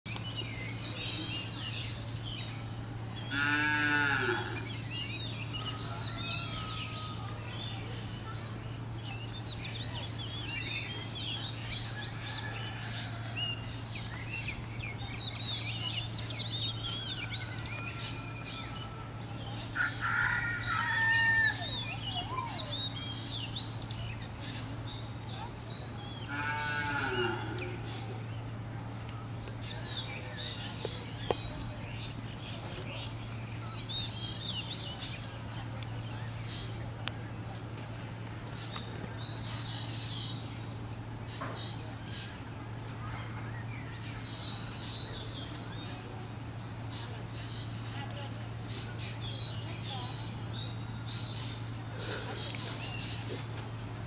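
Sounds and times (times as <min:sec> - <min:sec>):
steady low hum: 0:00.1 - 0:20.8
small birds chirping: 0:00.1 - 0:54.0.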